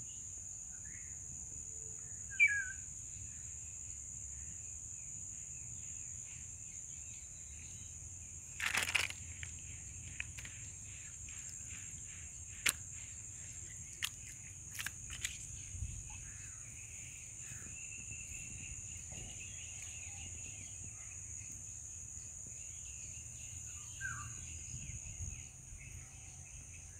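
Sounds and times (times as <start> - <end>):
high-pitched insect chorus: 0.0 - 26.9
brief rustle: 8.6 - 10.6.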